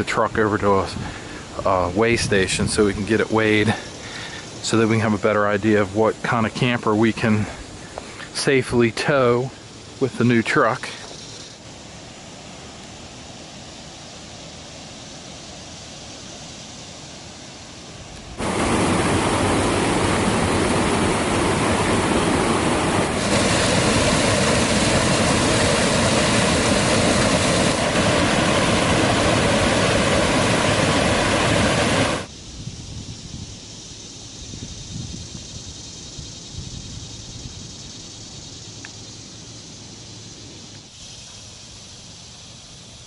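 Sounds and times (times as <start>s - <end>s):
faint outdoor ambience: 0.0s - 43.0s
water rushing over rocks: 18.3s - 32.3s.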